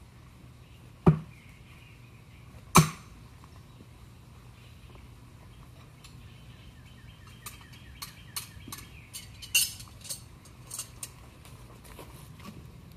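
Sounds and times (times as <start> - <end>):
metal knives clinking: 7.4 - 11.2.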